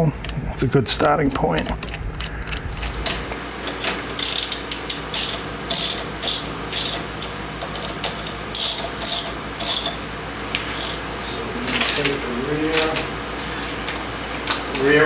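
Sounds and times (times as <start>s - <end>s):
ratchet wrench clicking: 4.1s - 10.0s, 10.6s - 11.0s.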